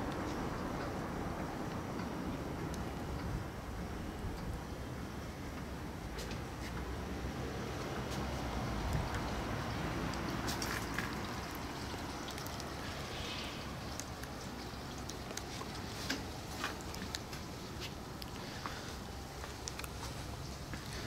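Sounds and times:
faint clicks and ticks: 0:10.0 - 0:21.0.

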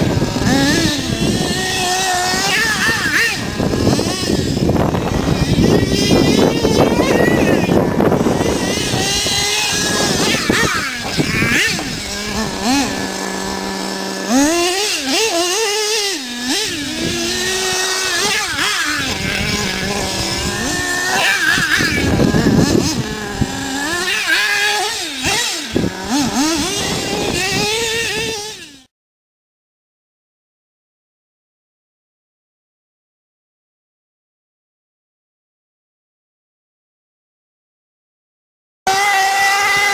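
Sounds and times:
rc truck engine revving: 0:00.0 - 0:28.9, 0:38.9 - 0:39.9.

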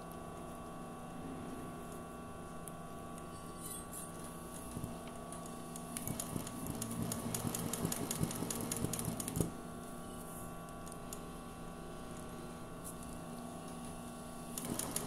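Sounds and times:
sewing machine stitching: 0:06.0 - 0:09.5, 0:14.6 - 0:15.0.

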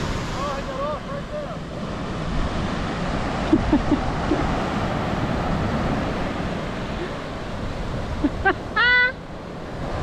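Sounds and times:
ocean surf breaking: 0:00.0 - 0:10.0.

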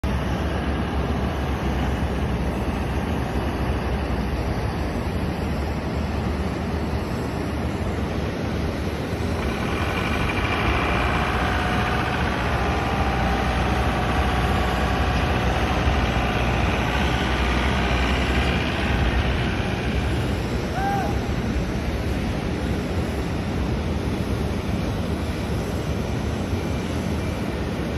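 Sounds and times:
low engine rumble: 0:07.5 - 0:23.0.

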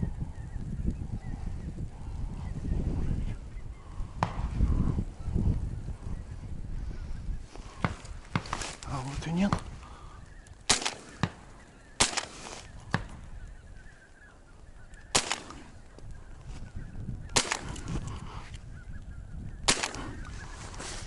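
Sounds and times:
shotgun reports with echo: 0:10.7 - 0:11.4, 0:15.1 - 0:15.7, 0:17.4 - 0:17.8, 0:19.7 - 0:20.2.

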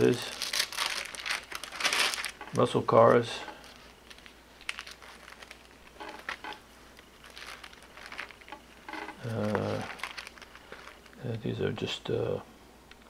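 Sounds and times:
album pages rustling and crinkling: 0:00.0 - 0:11.5
man's voice murmuring: 0:09.2 - 0:10.0.

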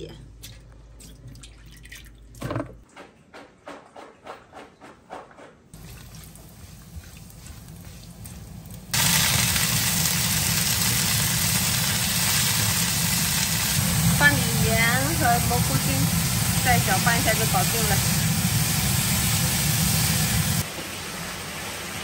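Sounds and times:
beans sizzling in a pan: 0:05.8 - 0:22.0
faint sizzle of shrimp frying: 0:05.8 - 0:22.0.

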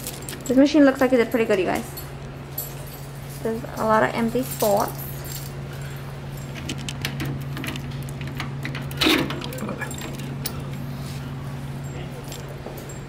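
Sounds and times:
keys jangling: 0:00.0 - 0:10.8, 0:11.7 - 0:13.0
steady low hum: 0:00.0 - 0:13.0
key clack: 0:03.8 - 0:10.8.

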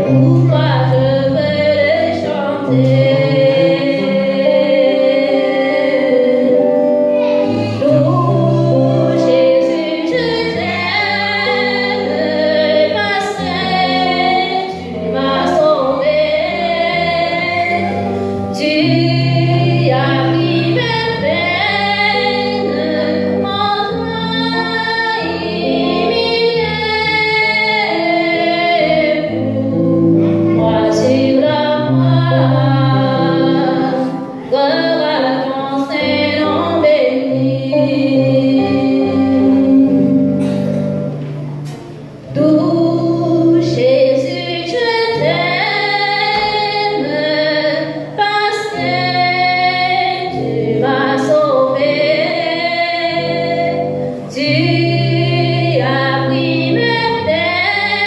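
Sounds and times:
woman singing a hymn: 0:00.0 - 0:41.0, 0:42.2 - 0:58.0
accompanying music with bass notes: 0:00.0 - 0:58.0.

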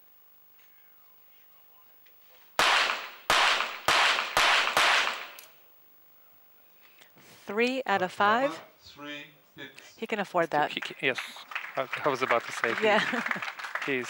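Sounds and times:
pistol shots with echo: 0:02.6 - 0:05.4.

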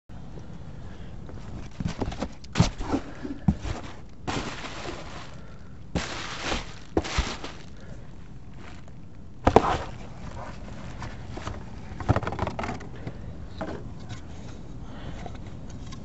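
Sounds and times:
cardboard packaging rustling: 0:01.4 - 0:12.5
bubble wrap crinkling: 0:01.8 - 0:11.4.

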